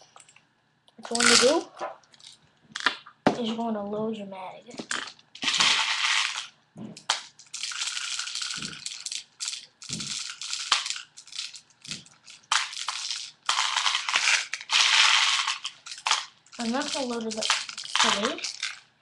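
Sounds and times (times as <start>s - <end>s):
gear rattling and rustling: 7.5s - 18.8s.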